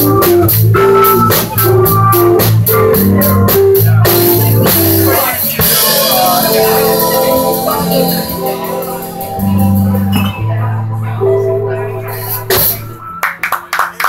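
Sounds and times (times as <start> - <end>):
sustained bass line: 0.0 - 13.2
electric keyboard chords: 0.0 - 13.4
people clapping: 13.2 - 14.0.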